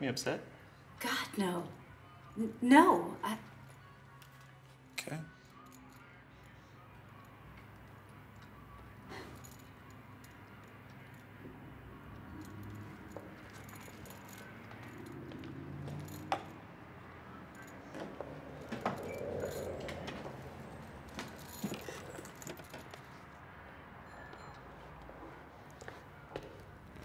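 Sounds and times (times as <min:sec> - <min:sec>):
metal chain strap jingling: 0:05.4 - 0:06.2, 0:07.1 - 0:23.4.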